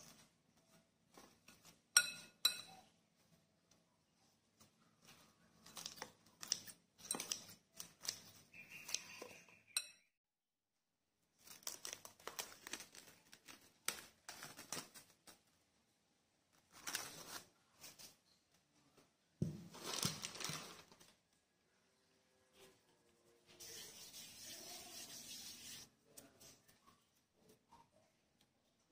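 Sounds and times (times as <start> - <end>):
cling film crinkling: 11.4 - 15.4.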